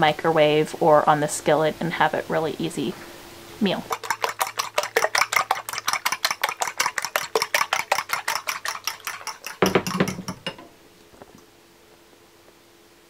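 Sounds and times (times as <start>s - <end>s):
fork whisking eggs in glass bowl: 3.8s - 10.6s.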